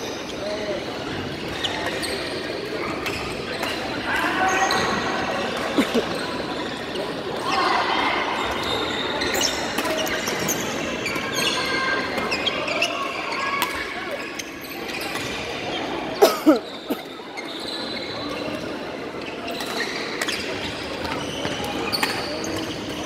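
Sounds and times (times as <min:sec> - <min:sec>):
murmur of voices: 0:00.0 - 0:23.0
sneakers squeaking on wooden court: 0:08.4 - 0:23.0.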